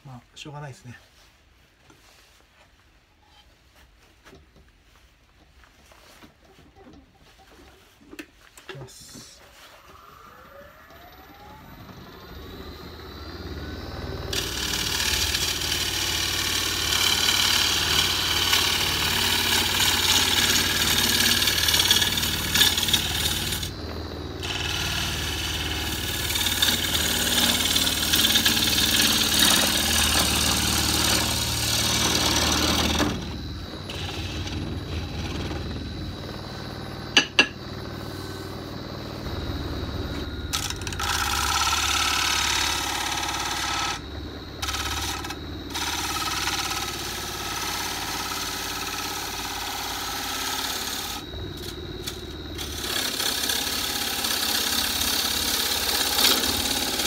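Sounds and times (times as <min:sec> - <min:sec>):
wood lathe whine: 0:08.2 - 0:57.0
gouge shaving wood: 0:14.3 - 0:35.9, 0:40.5 - 0:44.0, 0:44.6 - 0:57.0.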